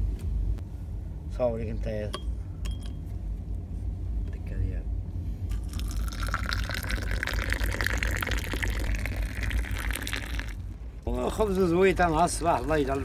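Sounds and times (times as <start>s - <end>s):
tea pouring into a glass: 5.5s - 10.6s, 11.3s - 13.0s.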